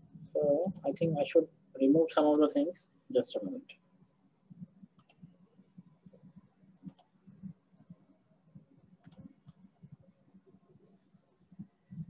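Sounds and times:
computer mouse clicks: 5.0s - 5.3s, 6.8s - 7.2s, 9.0s - 9.6s.

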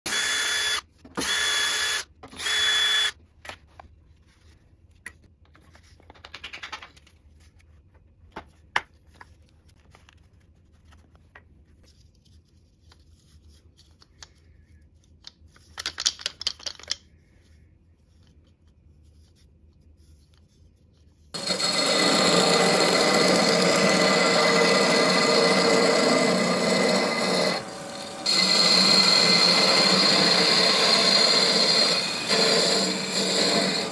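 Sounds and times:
cordless drill driving screws: 0.1s - 3.1s
wood lathe cutting wood: 21.4s - 33.9s.

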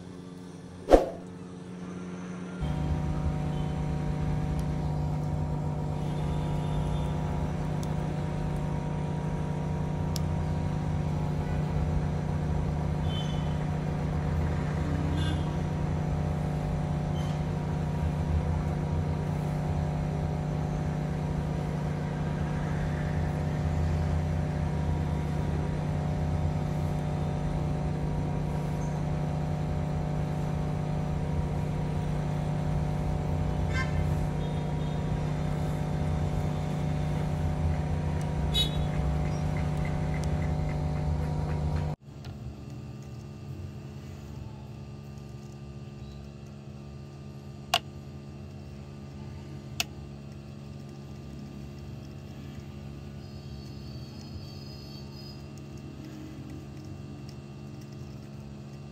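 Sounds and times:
hot air station blowing: 13.0s - 42.0s.

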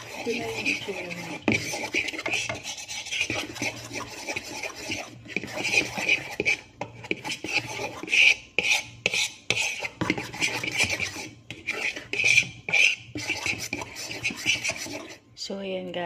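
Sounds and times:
utensil scraping mixing bowl: 0.0s - 15.4s.

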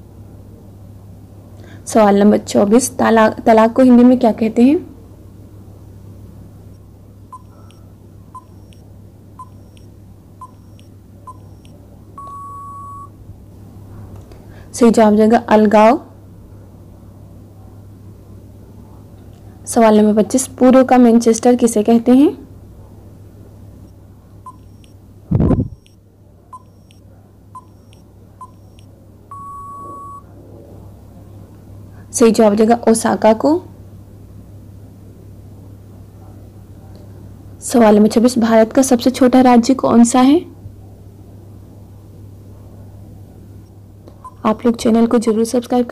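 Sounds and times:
low steady hum: 0.0s - 45.9s
long steady beep: 6.7s - 8.8s, 9.4s - 13.1s, 24.5s - 26.0s, 26.6s - 27.0s, 27.6s - 30.3s, 44.2s - 44.4s
short beeps: 6.7s - 8.8s, 9.4s - 13.1s, 24.5s - 26.0s, 26.6s - 27.0s, 27.6s - 30.3s.

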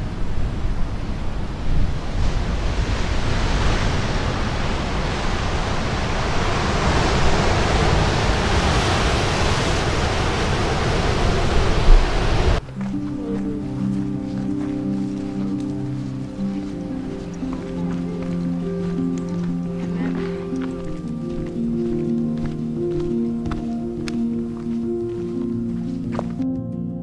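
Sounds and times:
ocean surf breaking on rocks: 0.0s - 26.1s
wind rumble on microphone: 0.0s - 26.2s
music: 12.6s - 27.0s.

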